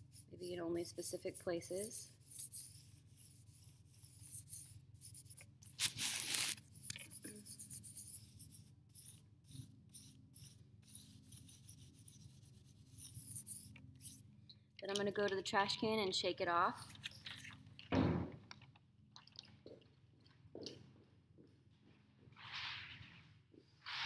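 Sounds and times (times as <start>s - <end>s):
hand swishing on paper: 5.7s - 7.4s.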